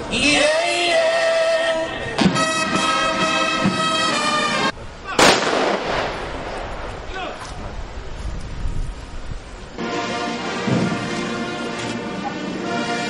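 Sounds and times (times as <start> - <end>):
held musical tones: 0.2 - 4.8, 9.8 - 13.0
rifle volley with echo: 5.2 - 7.4.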